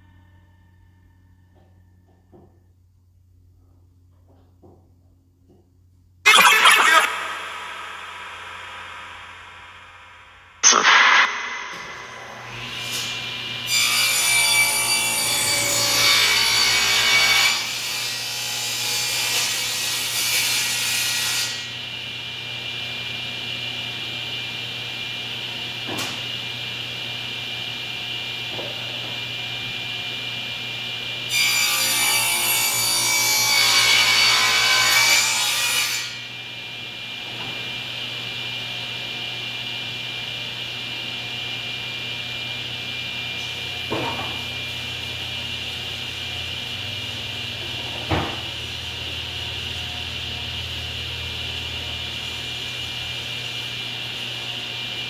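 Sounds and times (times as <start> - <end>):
electric saw cutting wood: 6.3 - 10.0.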